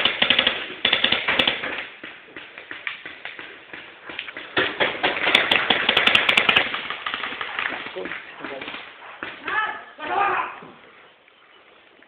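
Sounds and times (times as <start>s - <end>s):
paintball markers firing: 0.0s - 8.9s.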